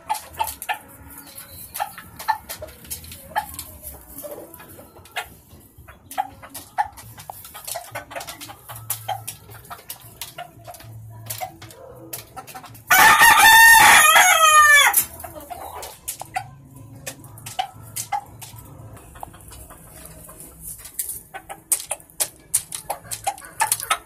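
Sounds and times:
hens clucking: 0.0s - 24.0s
rooster crowing: 12.9s - 15.0s.

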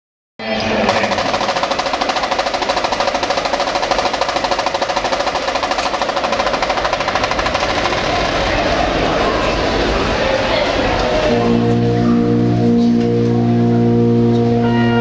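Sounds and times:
snare drum roll: 0.6s - 11.4s.

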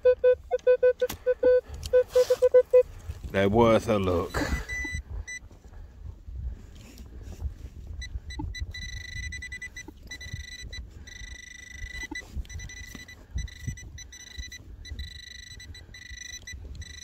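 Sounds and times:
metal detector beeping: 0.0s - 2.9s, 4.4s - 5.4s, 8.0s - 17.0s.

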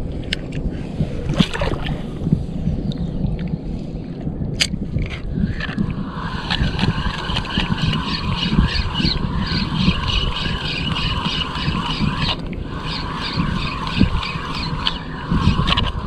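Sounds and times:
wind and water rushing: 0.0s - 16.0s
fishing reel whirring: 5.4s - 16.0s.

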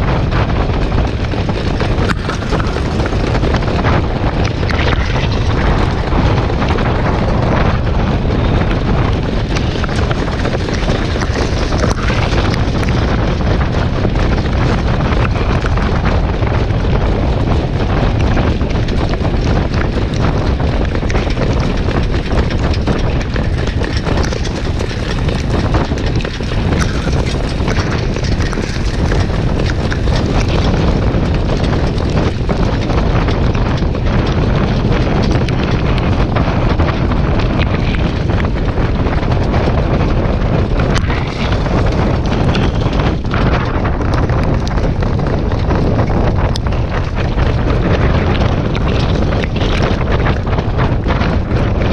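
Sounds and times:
wind rushing over microphone: 0.0s - 51.9s.

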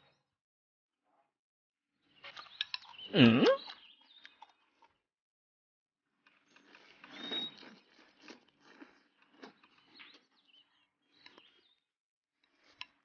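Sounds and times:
chewing and smacking: 2.2s - 5.0s, 6.2s - 11.8s, 12.4s - 13.0s.

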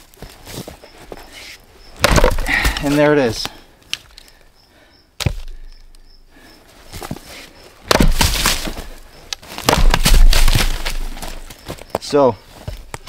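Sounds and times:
axe chopping log: 2.0s - 3.5s, 5.2s - 5.6s, 7.8s - 11.4s
log splitting: 2.0s - 4.3s, 5.2s - 6.0s, 6.9s - 13.0s.

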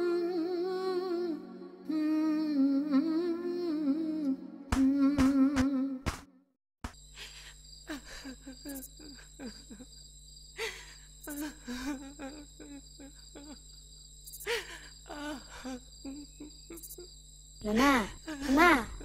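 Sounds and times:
crickets trilling: 6.9s - 19.0s.

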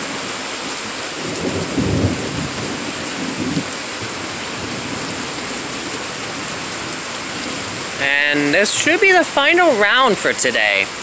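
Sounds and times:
rain hissing: 0.0s - 11.0s
thunder rumbling: 1.1s - 9.8s.

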